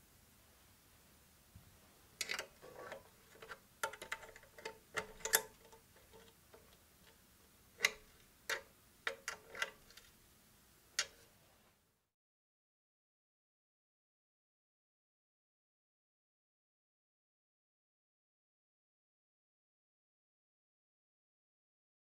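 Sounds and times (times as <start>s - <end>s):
spanner clicking on metal bolts: 2.2s - 6.3s.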